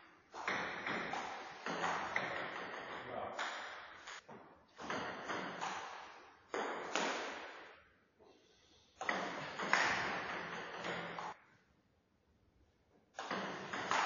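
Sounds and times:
table tennis ball knocking: 0:00.4 - 0:03.8.

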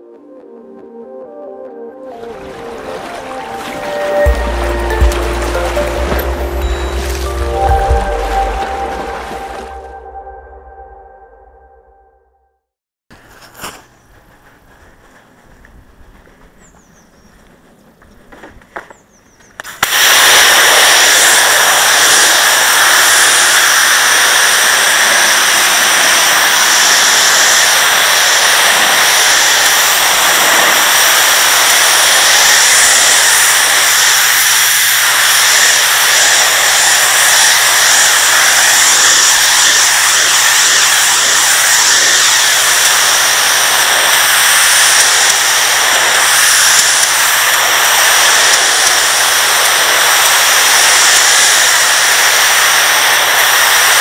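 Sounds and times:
pressure washer spraying water: 0:02.2 - 0:09.6, 0:19.8 - 0:54.0
low machine hum: 0:02.2 - 0:12.1.

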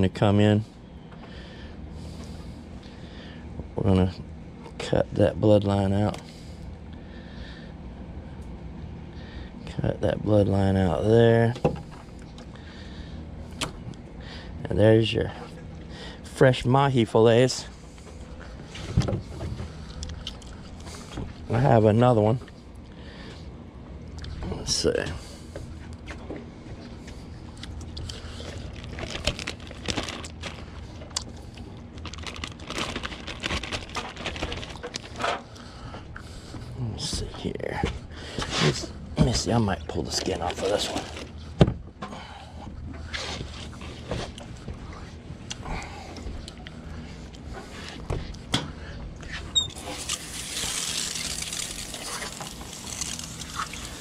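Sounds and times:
knocks and clicks handling fish: 0:11.5 - 0:12.4, 0:18.8 - 0:20.0
plastic bag crinkling: 0:28.1 - 0:31.2, 0:31.8 - 0:35.3, 0:49.8 - 0:54.0.

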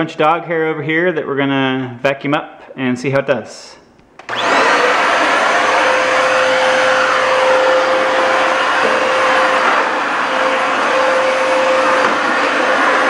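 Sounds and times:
vacuum cleaner running: 0:04.2 - 0:13.0.

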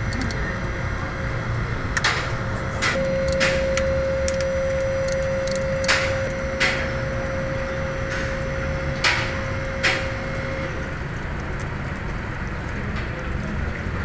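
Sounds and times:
steady tone: 0:00.0 - 0:10.9
low background hum: 0:00.0 - 0:14.0.

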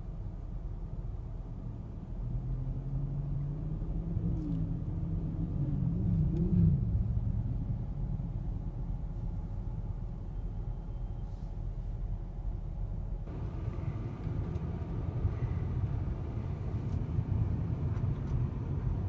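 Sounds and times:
car engine and road noise: 0:00.0 - 0:19.0.

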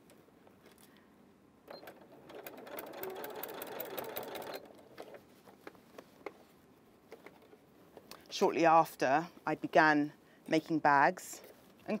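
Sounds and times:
sewing machine stitching: 0:01.7 - 0:05.2.

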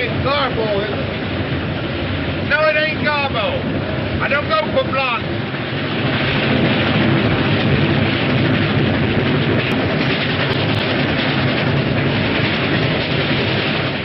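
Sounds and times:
steam train rushing past: 0:00.0 - 0:14.0.

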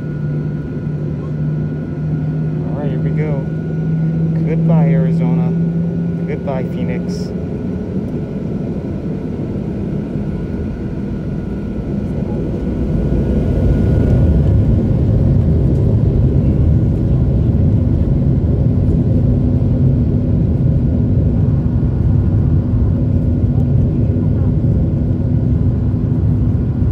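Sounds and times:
aircraft cabin low rumble: 0:00.0 - 0:26.9
faint high engine whine: 0:00.0 - 0:26.9
steady hum: 0:00.0 - 0:26.9.

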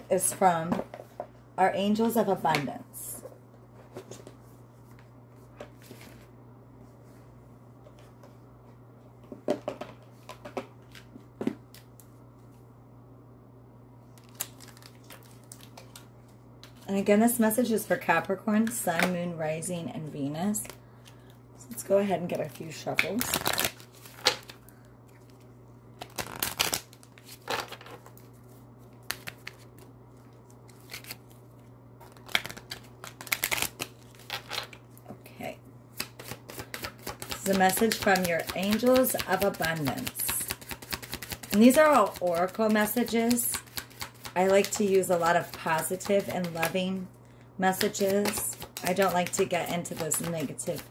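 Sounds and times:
steady low hum: 0:00.0 - 0:50.9
cards being shuffled: 0:22.9 - 0:34.8, 0:36.0 - 0:46.8.

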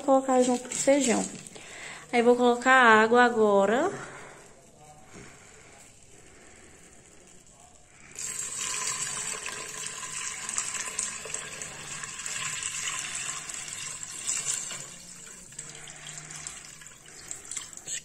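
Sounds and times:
water pouring into pot: 0:08.0 - 0:18.0.

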